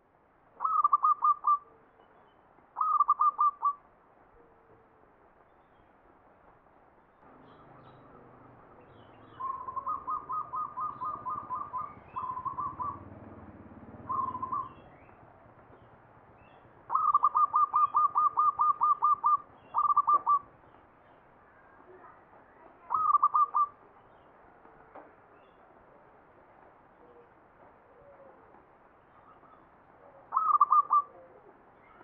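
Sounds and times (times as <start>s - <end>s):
dove cooing: 0.6s - 1.7s, 2.8s - 3.8s, 9.3s - 13.2s, 14.0s - 14.9s, 16.9s - 20.5s, 22.9s - 23.8s, 27.0s - 32.0s.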